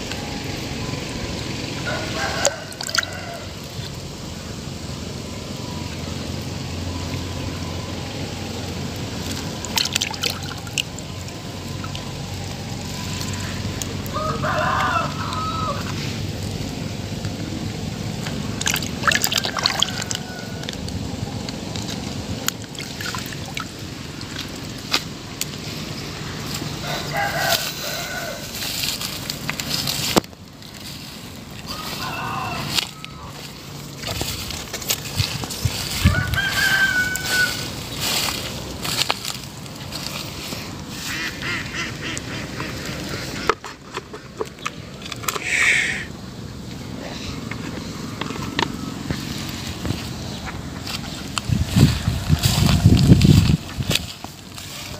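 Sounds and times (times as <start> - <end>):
rooster crowing: 1.8 - 3.8, 13.3 - 16.2, 19.0 - 20.9, 26.5 - 30.1, 31.6 - 34.4, 35.0 - 39.0
water trickling and lapping: 2.4 - 4.0, 8.8 - 14.0, 17.6 - 27.0
small splashes: 9.3 - 12.1, 18.5 - 20.8, 22.4 - 25.2.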